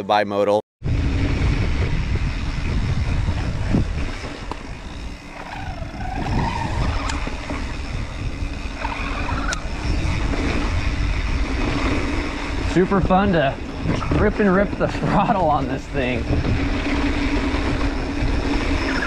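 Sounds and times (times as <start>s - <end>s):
bicycle tyre noise on dirt: 0.8s - 19.0s
wind rumble on microphone: 0.8s - 19.0s
electric motor whir: 0.9s - 19.0s
sharp ticks: 4.4s - 10.0s.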